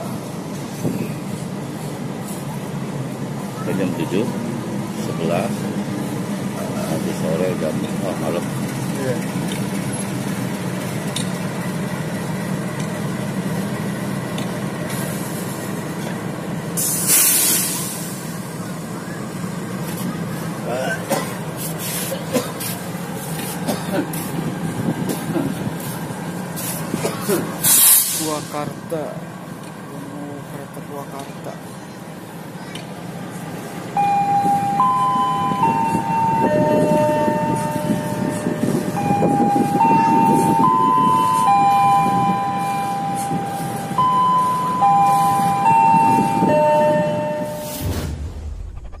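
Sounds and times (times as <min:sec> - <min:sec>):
diesel locomotive idling: 0:00.0 - 0:49.0
slow tune of held tones: 0:34.0 - 0:47.8.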